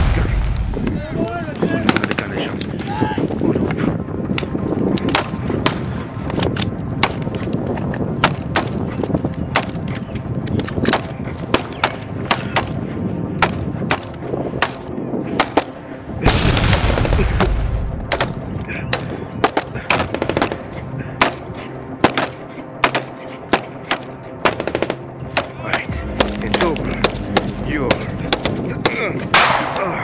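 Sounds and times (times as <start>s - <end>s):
steady low rumble: 0.0s - 30.0s
sharp cracks: 13.4s - 30.0s.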